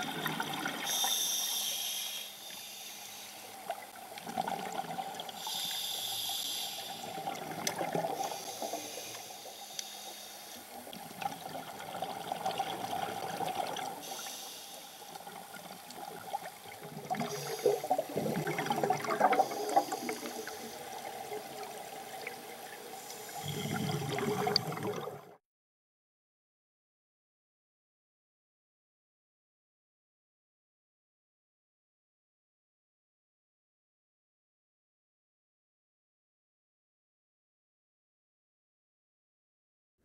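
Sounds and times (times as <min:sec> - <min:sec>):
underwater bubbling rushes: 0:00.0 - 0:01.0, 0:03.6 - 0:05.6, 0:06.9 - 0:09.2, 0:10.9 - 0:14.1, 0:15.2 - 0:25.4.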